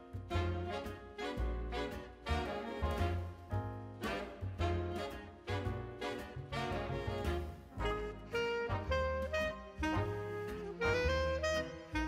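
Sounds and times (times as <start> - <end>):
upbeat jazzy music with brass: 0.0 - 12.0.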